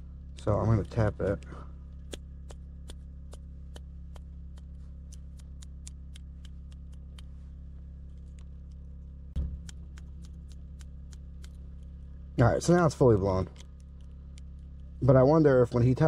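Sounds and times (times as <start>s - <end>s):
steady low hum: 0.0s - 16.0s
finger tapping on fuse: 0.3s - 7.3s, 9.4s - 11.7s.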